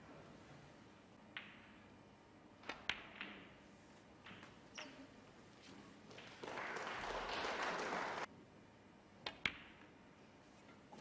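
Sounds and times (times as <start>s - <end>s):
cue ball hitting object ball: 1.3s - 1.8s, 2.6s - 3.6s
audience applause: 6.2s - 8.3s.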